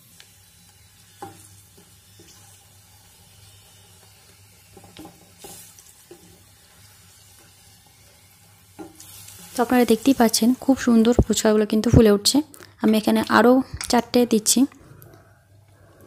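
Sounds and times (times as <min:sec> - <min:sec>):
food deep-frying in oil: 0:00.0 - 0:11.5.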